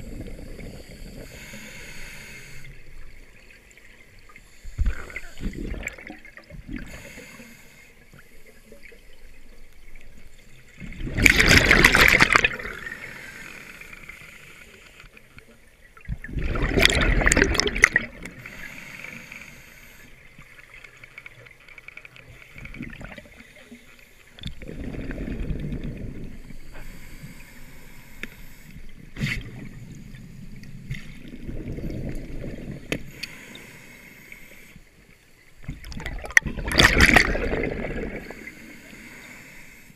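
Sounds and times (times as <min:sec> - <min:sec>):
diver breathing through regulator: 0:00.0 - 0:02.8, 0:06.8 - 0:08.6, 0:12.6 - 0:15.0, 0:18.3 - 0:20.2, 0:26.2 - 0:30.4, 0:32.9 - 0:34.9, 0:37.5 - 0:39.9
exhaled bubbles rushing underwater: 0:03.1 - 0:07.0, 0:09.9 - 0:13.2, 0:15.9 - 0:18.4, 0:22.7 - 0:23.5, 0:24.4 - 0:26.8, 0:29.2 - 0:33.1, 0:35.6 - 0:38.7.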